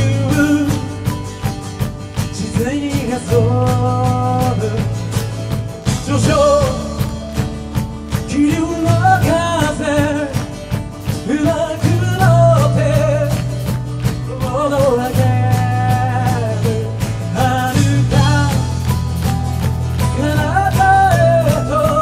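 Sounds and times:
bass: 0.0s - 22.0s
man singing with vibrato: 0.0s - 22.0s
steady drum beat: 0.0s - 22.0s
strummed acoustic guitar: 0.0s - 22.0s.

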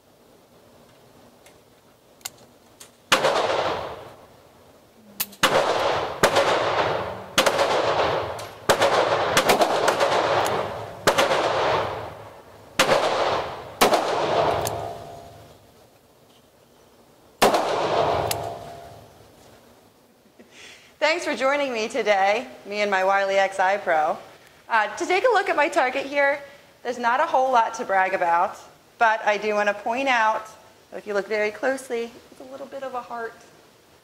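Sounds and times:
revolver shots echoing indoors: 3.1s - 4.2s, 5.2s - 15.6s, 17.4s - 19.1s.

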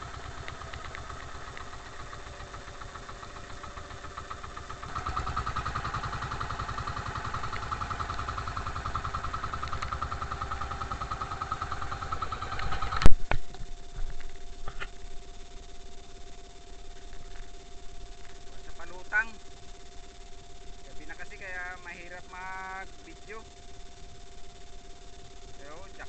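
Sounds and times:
boat engine running: 0.0s - 15.8s.

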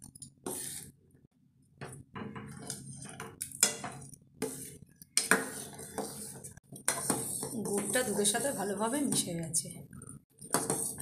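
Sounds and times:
metal spoon scraping steel pot: 2.5s - 9.3s, 10.4s - 11.0s.

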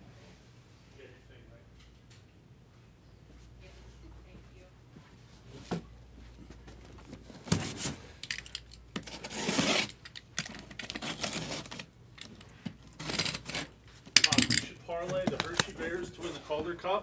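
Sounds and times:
cardboard rasp: 9.1s - 10.0s
cardboard boxes tapping and scraping: 15.0s - 16.7s.

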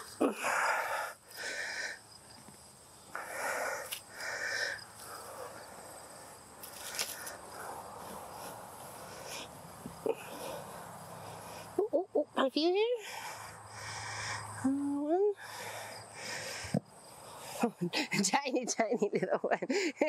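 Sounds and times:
digging through soil: 6.6s - 10.9s.

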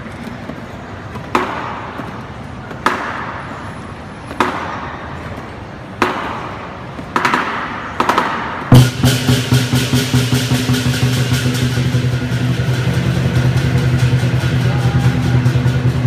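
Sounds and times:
cymbals clashing: 8.7s - 16.0s.

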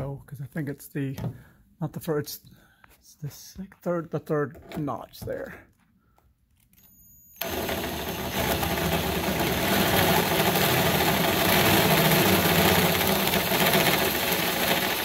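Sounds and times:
power drill cutting metal: 7.4s - 15.0s.

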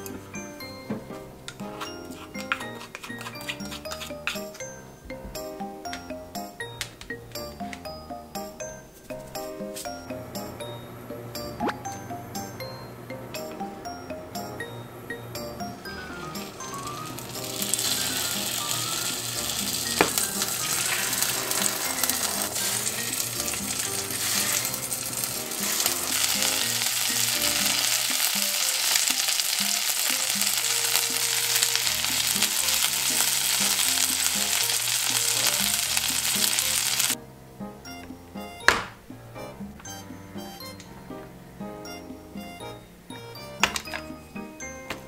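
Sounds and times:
fish fillets sizzling in oil: 15.9s - 37.2s.

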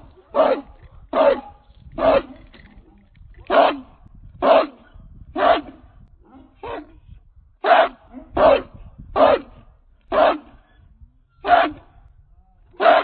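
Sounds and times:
dog barking: 0.3s - 2.3s, 3.5s - 3.8s, 4.4s - 5.7s, 6.3s - 6.9s, 7.6s - 9.5s, 10.1s - 10.5s, 11.4s - 11.8s, 12.8s - 13.0s.

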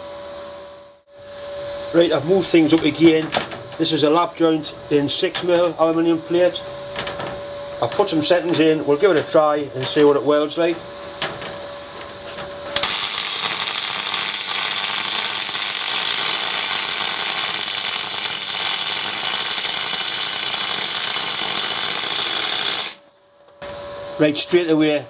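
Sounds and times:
welding arc hiss and crackle: 12.7s - 23.2s.

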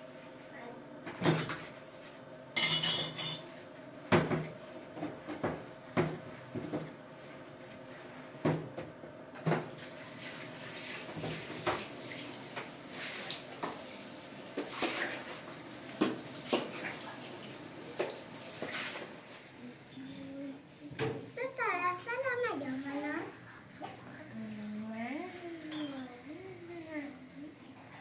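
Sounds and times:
dishes and cutlery clattering: 2.6s - 3.5s, 25.7s - 26.0s.

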